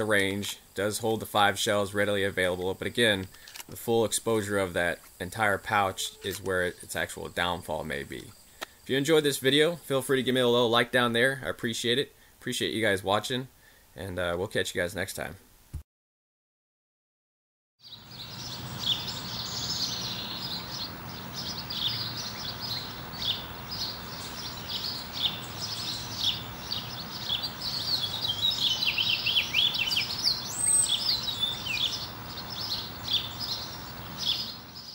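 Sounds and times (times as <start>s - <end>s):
outdoor background hiss: 0.0s - 15.8s, 17.8s - 34.9s
small birds chirping: 17.8s - 34.9s.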